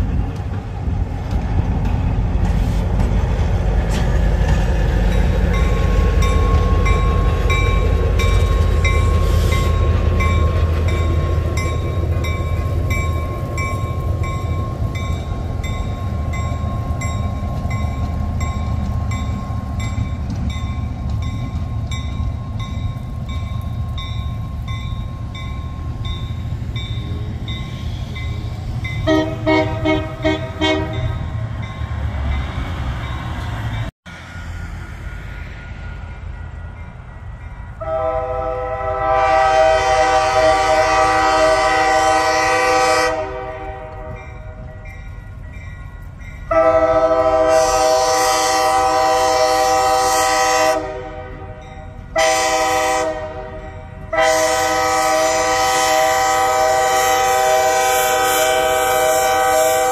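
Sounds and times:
diesel locomotive engine rumble: 0:00.0 - 0:59.9
long loud horn blast: 0:29.0 - 0:31.1, 0:37.8 - 0:44.2, 0:46.5 - 0:51.6, 0:52.2 - 0:59.9.

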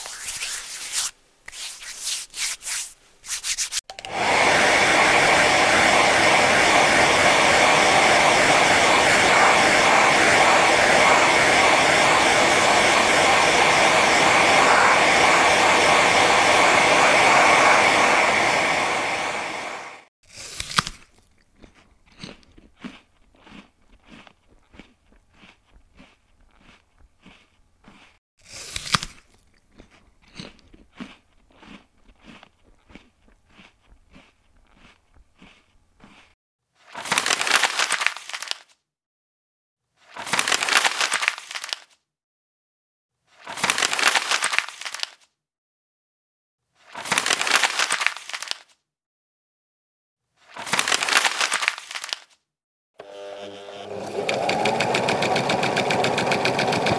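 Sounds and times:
paper being crumpled: 0:00.0 - 0:03.8, 0:36.9 - 0:38.8, 0:40.1 - 0:42.0, 0:43.4 - 0:45.3, 0:46.8 - 0:48.8, 0:50.5 - 0:52.4
hair dryer blowing: 0:04.0 - 0:20.1, 0:53.0 - 0:56.9
crunchy bite: 0:20.3 - 0:36.3
crunchy chewing: 0:20.3 - 0:36.4.

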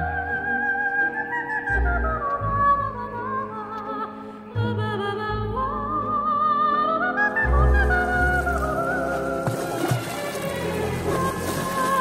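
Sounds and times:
water splashing: 0:07.6 - 0:12.0.

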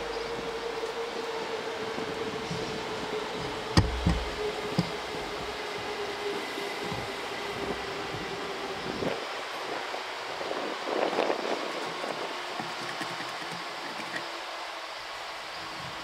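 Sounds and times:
freight train hum: 0:00.0 - 0:16.0
wheels knocking over rail joints: 0:02.4 - 0:05.6, 0:11.7 - 0:14.2.

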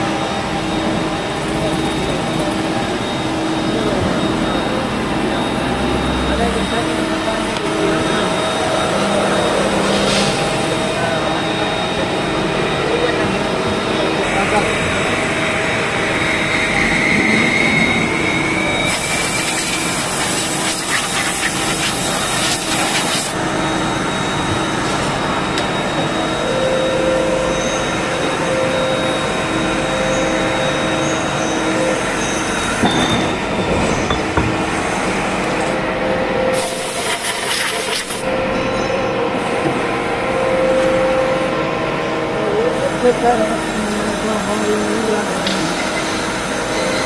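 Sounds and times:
faint rising whine: 0:00.0 - 0:20.2
machinery hums: 0:00.0 - 0:47.0
pulsing machine hum: 0:00.0 - 0:47.0
loud rushing hiss: 0:18.8 - 0:23.4.

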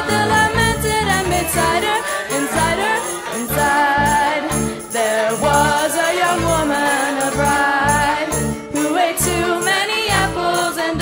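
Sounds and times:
steady bass beat: 0:00.0 - 0:02.8
live band music: 0:00.0 - 0:06.1
jingling percussion: 0:00.0 - 0:11.0.

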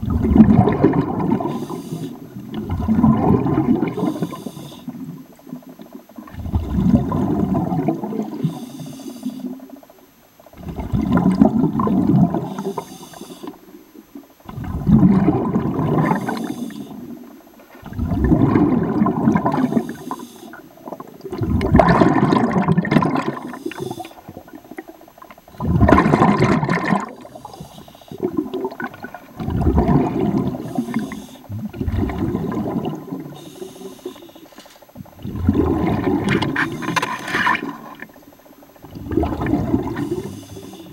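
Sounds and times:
bubbling rush of exhaled air: 0:00.0 - 0:05.2, 0:06.2 - 0:08.6, 0:10.5 - 0:12.9, 0:14.4 - 0:34.1, 0:35.0 - 0:38.0, 0:38.8 - 0:40.9
regulator inhale hiss: 0:01.4 - 0:02.4, 0:03.9 - 0:05.2, 0:08.2 - 0:09.8, 0:12.4 - 0:13.8, 0:16.0 - 0:17.2, 0:19.6 - 0:20.8, 0:23.4 - 0:24.4, 0:27.2 - 0:28.4, 0:30.5 - 0:31.5, 0:33.2 - 0:34.6, 0:39.9 - 0:40.9.

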